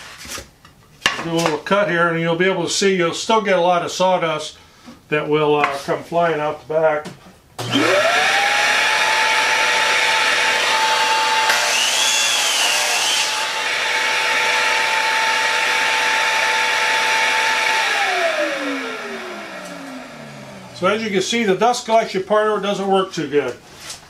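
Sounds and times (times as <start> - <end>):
miter saw motor whine: 7.6 - 20.8
saw blade cutting wood: 7.8 - 20.9.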